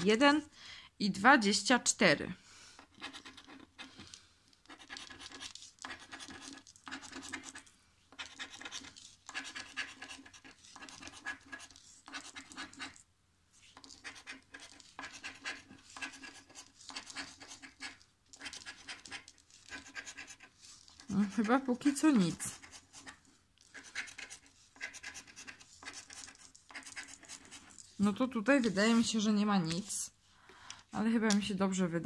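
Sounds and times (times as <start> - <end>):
scraper scratching lottery ticket: 2.9 - 4.0, 4.6 - 13.0, 13.8 - 27.8.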